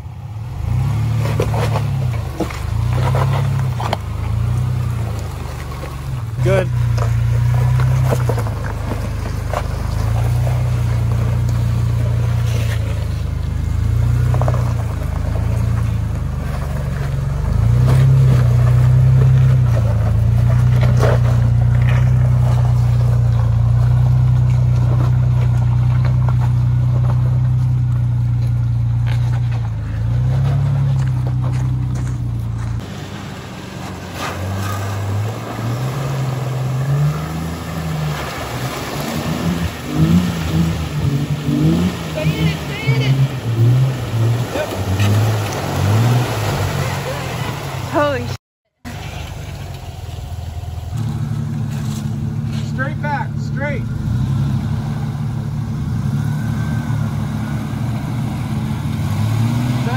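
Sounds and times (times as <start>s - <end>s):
engine revving at low speed: 0.0s - 59.9s
tires knocking on stone: 0.7s - 33.1s.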